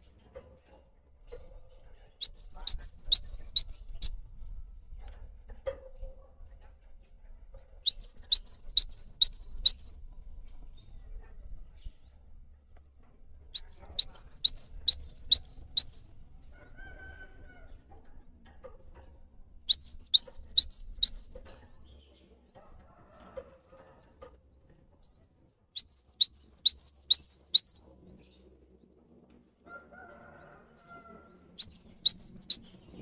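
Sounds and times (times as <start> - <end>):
bird singing whistled notes: 2.2 - 4.2, 7.8 - 10.0, 13.6 - 16.1, 19.7 - 21.5, 25.8 - 27.8, 31.6 - 32.8.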